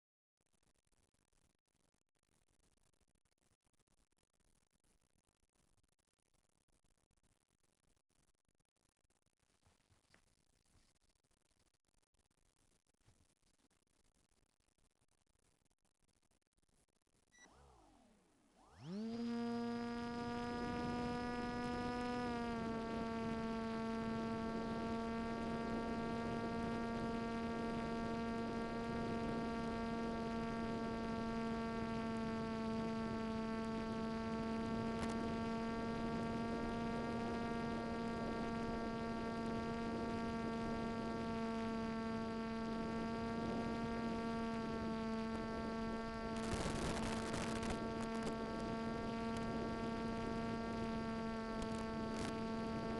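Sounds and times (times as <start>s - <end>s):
electric motor and propeller whine: 17.4s - 52.9s.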